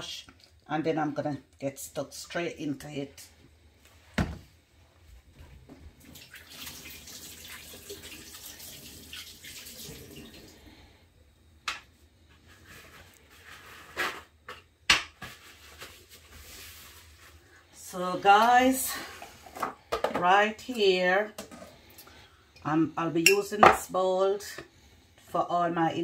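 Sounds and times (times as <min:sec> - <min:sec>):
kitchen tap running: 0:06.0 - 0:10.6.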